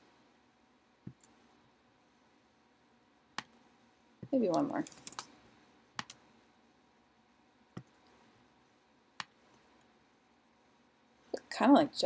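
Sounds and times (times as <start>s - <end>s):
computer mouse clicks: 6.0s - 6.2s, 9.2s - 9.9s.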